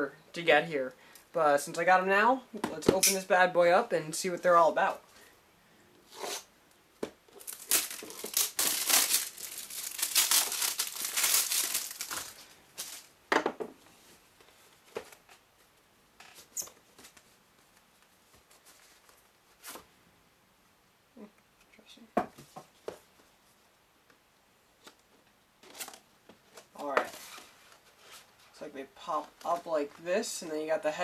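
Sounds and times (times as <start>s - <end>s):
packaging tearing and crinkling: 7.4s - 13.1s.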